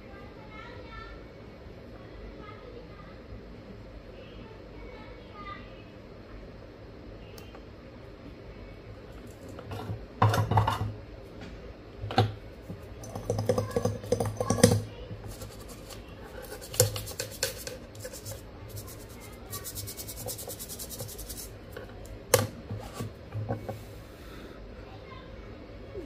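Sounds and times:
scraping and rubbing chip: 13.0 - 21.8
quick scratching strokes: 15.3 - 21.6.

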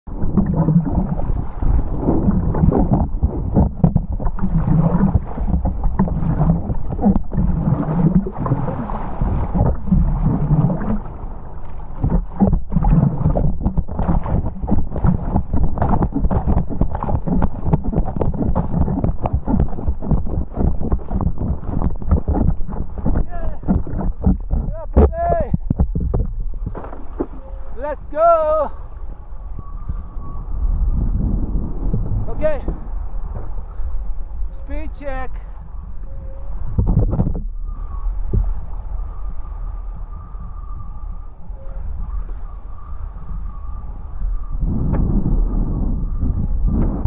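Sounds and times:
wind buffeting microphone: 0.0 - 47.0
water rushing and splashing: 0.1 - 29.2.

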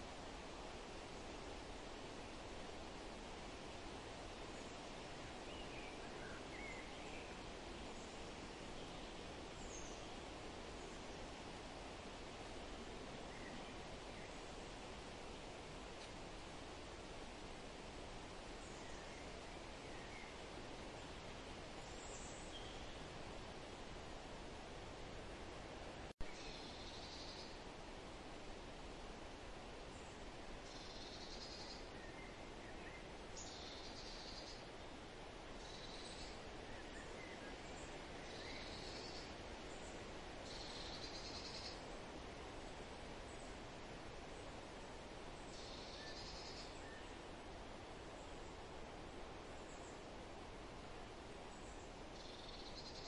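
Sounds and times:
outdoor background hiss: 0.0 - 53.0
faint bird chirps: 21.8 - 23.1, 26.2 - 27.6, 29.9 - 34.9, 35.6 - 42.0, 45.4 - 47.2, 51.5 - 53.0.

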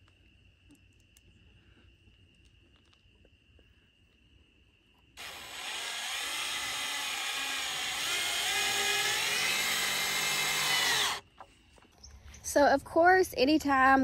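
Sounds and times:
cordless drill motor whining: 5.2 - 11.2.

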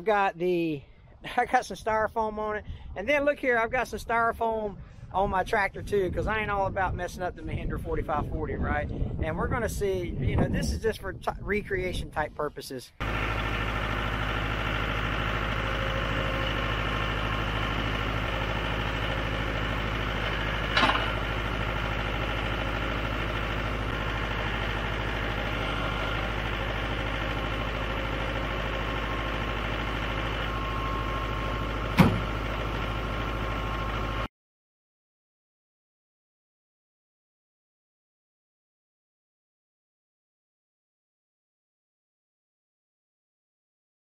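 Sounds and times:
tractor diesel engine running: 13.0 - 34.3
sharp knocks: 32.0 - 32.3.

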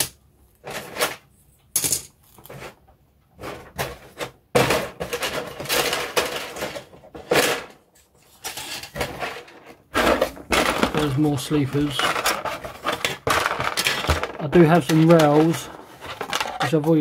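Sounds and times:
plastic bag crinkling: 10.0 - 17.0.

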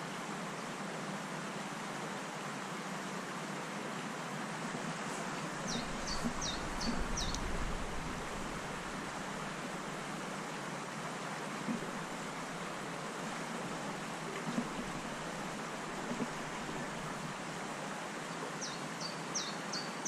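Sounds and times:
stream water flowing: 0.0 - 20.0
bird chirping: 5.7 - 7.6
low rumble: 5.8 - 9.9.

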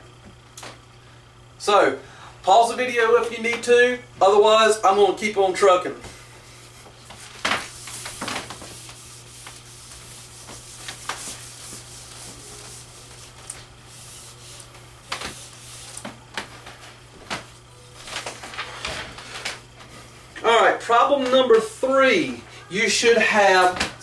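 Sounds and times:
eraser wiping whiteboard: 6.6 - 17.5.

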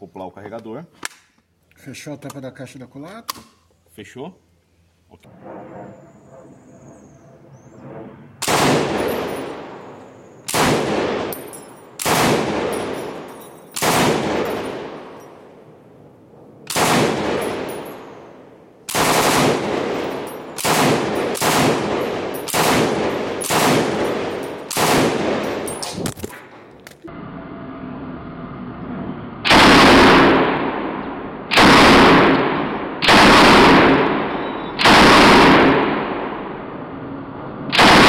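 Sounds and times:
machine gun firing bursts: 8.4 - 9.8, 10.5 - 11.4, 12.0 - 13.1, 13.8 - 15.0, 16.7 - 17.9, 18.9 - 25.7, 31.5 - 32.3, 33.0 - 34.0, 34.8 - 35.9, 37.8 - 38.0.

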